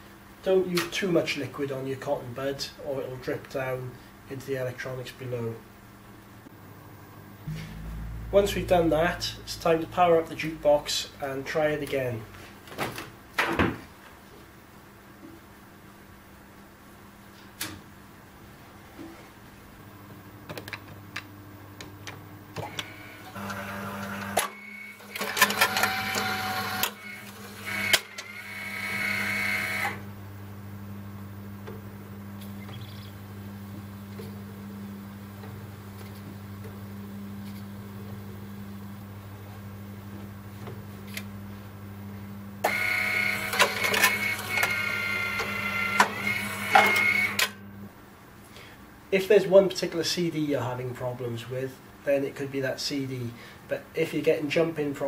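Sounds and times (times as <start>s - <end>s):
steady low hum: 1.4s - 13.4s, 30.0s - 42.6s, 46.2s - 50.0s
low hum: 6.5s - 12.3s
motors and gears whirring: 22.6s - 30.0s, 42.6s - 47.6s
disc changer clicks and clunks: 42.7s - 47.6s.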